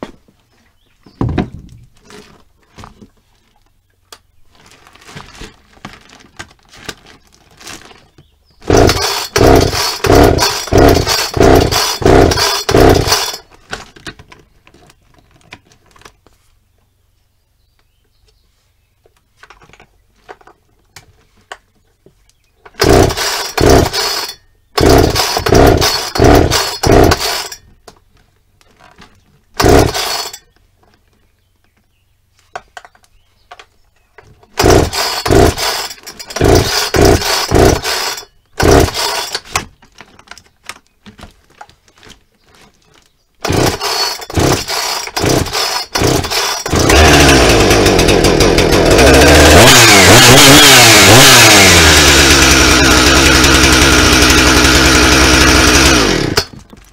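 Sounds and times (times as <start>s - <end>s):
chainsaw cranking and sputtering: 5.0s - 15.1s, 22.7s - 27.8s, 28.8s - 30.5s, 34.2s - 42.1s, 42.9s - 56.9s
chainsaw engine running: 8.6s - 13.5s, 22.8s - 27.6s, 29.6s - 30.4s, 34.5s - 39.5s, 43.4s - 56.7s.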